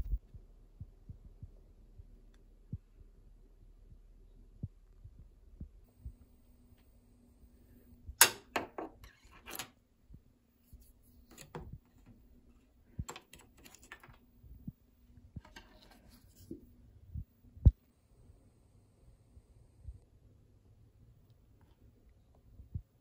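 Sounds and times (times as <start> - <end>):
faint steady hum: 0.0 - 23.0
scraping and clicking in narrow gap: 11.2 - 12.2, 13.0 - 14.2.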